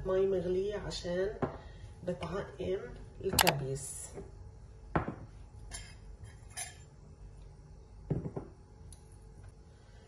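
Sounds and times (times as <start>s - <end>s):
glass bowls clinking on countertop: 5.0s - 6.9s.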